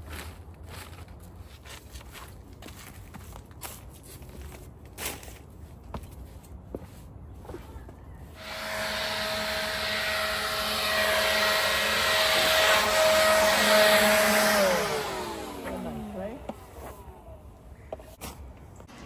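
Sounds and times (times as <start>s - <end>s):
leaf blower running: 8.4s - 17.6s.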